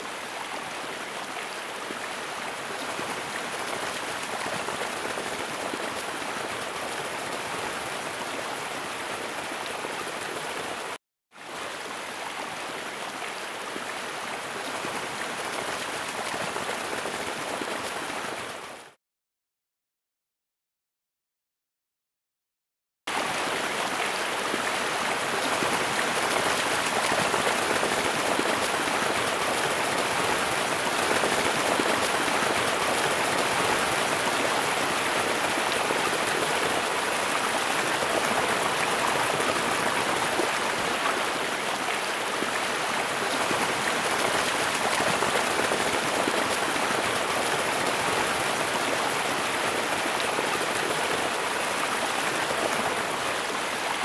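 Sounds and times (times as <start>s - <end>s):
floodwater rushing: 23.2s - 54.0s.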